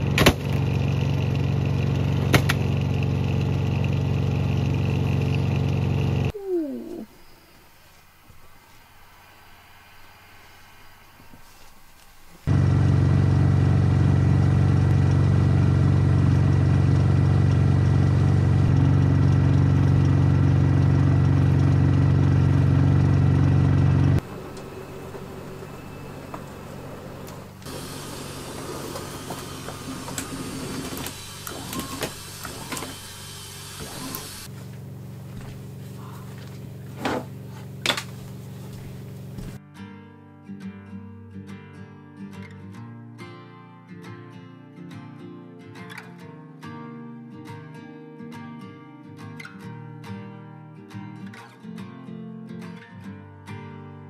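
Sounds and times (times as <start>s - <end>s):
electric motor humming: 12.5s - 34.5s.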